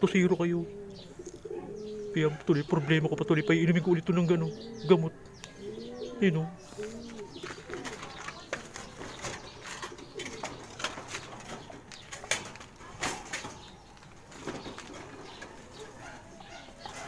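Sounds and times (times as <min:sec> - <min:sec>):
pigeons cooing: 0:00.0 - 0:17.0
clicks and knocks in cage: 0:07.0 - 0:15.6.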